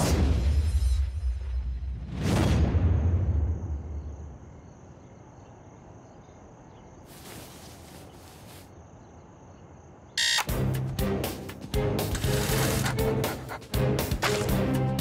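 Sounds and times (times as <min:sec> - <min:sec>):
crickets chirping: 0:03.1 - 0:10.5
soft rustle: 0:07.0 - 0:08.8.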